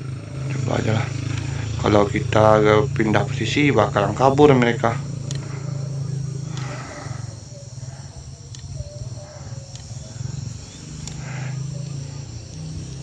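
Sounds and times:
high-pitched insect drone: 0.0 - 13.0
faint clicks: 5.2 - 5.7, 6.4 - 7.1, 8.4 - 13.0.

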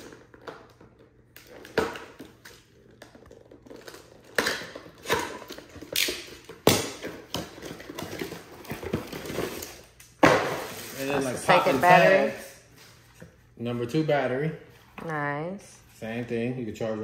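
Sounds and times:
cardboard and plastic rustling: 7.1 - 13.2.

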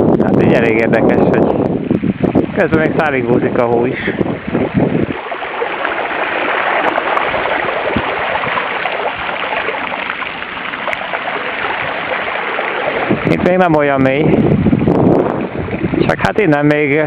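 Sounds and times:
bike tyre spraying through water: 3.4 - 16.1.

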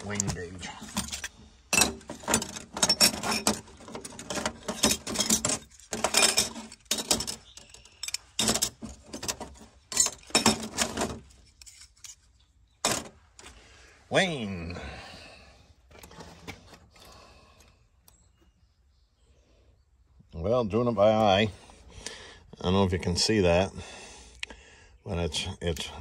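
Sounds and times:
metal tools clinking: 0.0 - 13.2.

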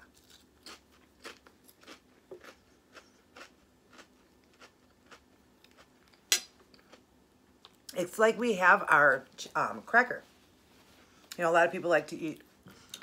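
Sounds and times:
person chewing crunchy chips: 0.0 - 7.9.

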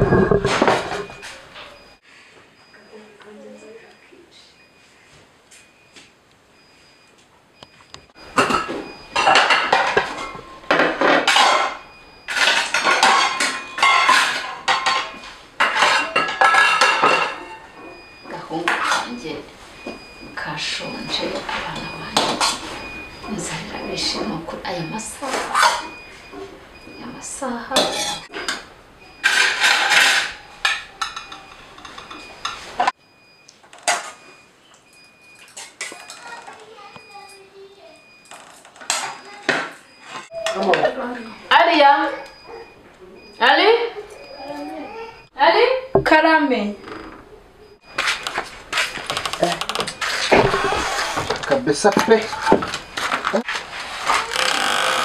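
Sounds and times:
metal spoon scraping pots: 0.0 - 1.4, 27.7 - 28.6
metal spoon clattering on pots: 8.4 - 17.7, 27.7 - 32.7.

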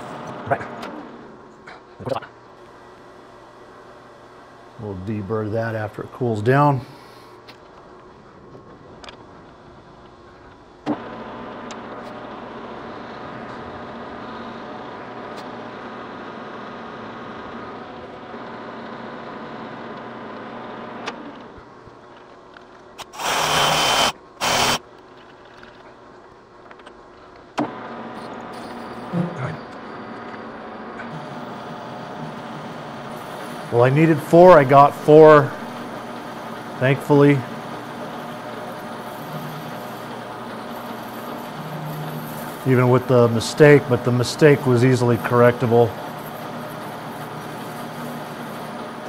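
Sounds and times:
loud rushing hisses: 23.0 - 24.8
metal lathe humming: 23.0 - 24.8, 31.1 - 49.0.

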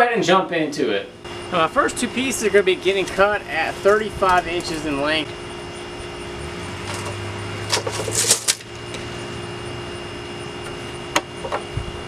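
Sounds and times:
steady background hum: 0.0 - 12.0
tape measure and pencil scraping: 2.9 - 5.0, 7.7 - 8.7.

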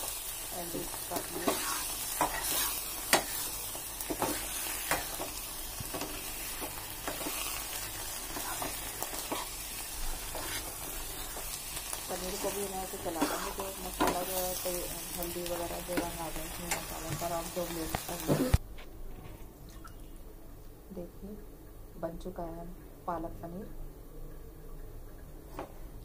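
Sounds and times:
food sizzling: 0.0 - 18.6.

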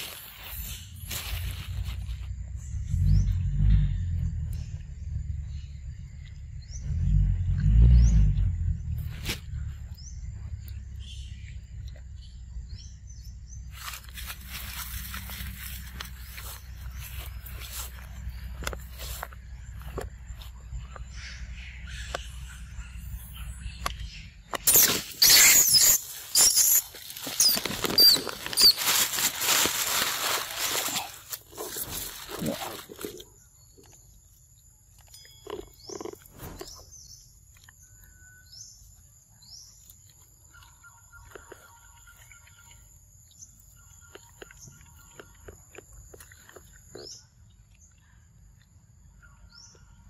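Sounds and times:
bird chirps: 0.0 - 29.3, 30.7 - 50.0
loud rustling and crackling: 24.7 - 33.2.

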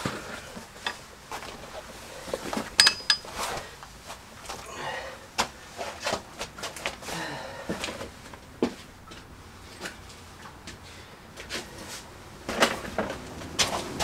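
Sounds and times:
metal tools clinking: 2.7 - 3.5.

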